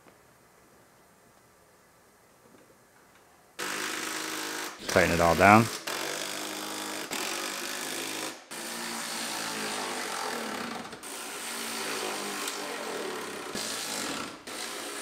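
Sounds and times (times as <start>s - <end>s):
power tool tightening bolts: 10.0s - 15.0s.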